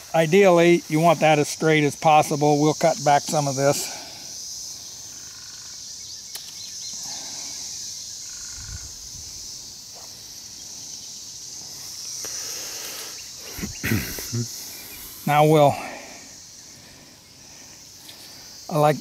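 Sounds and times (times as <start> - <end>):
high-pitched insects chirring: 0.0 - 19.0
sharp click: 6.3 - 6.6.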